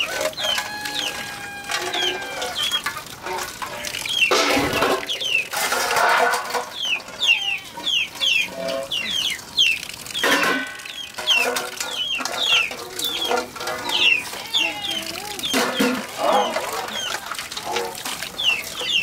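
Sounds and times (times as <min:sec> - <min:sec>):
water splashing from tap: 0:00.0 - 0:07.3, 0:07.9 - 0:19.0
steel plates clattering: 0:02.8 - 0:07.2, 0:10.2 - 0:18.0
chicks peeping: 0:11.0 - 0:17.4, 0:18.4 - 0:19.0.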